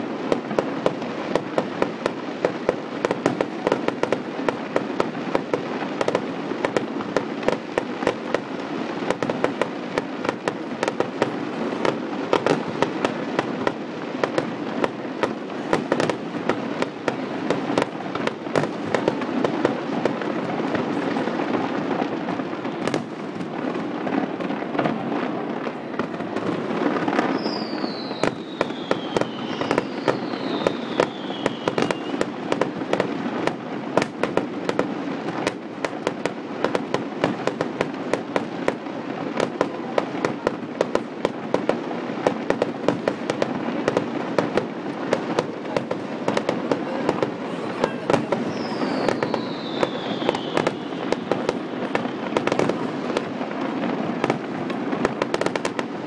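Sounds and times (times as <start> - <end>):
firework bangs and crackling: 0.0 - 56.0
firework falling whistles: 25.5 - 32.3, 47.2 - 52.8.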